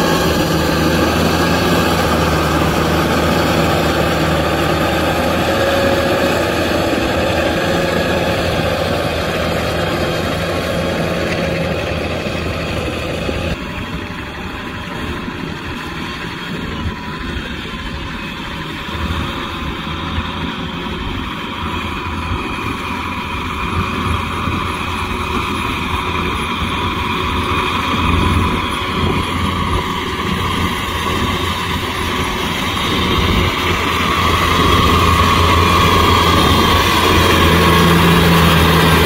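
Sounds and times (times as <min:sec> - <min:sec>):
tractor diesel engine running: 0:00.0 - 0:39.0.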